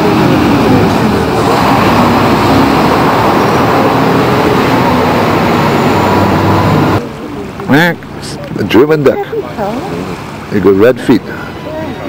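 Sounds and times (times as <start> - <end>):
loud steady background noise: 0.0 - 12.0
man talking: 7.7 - 9.3, 10.5 - 11.4.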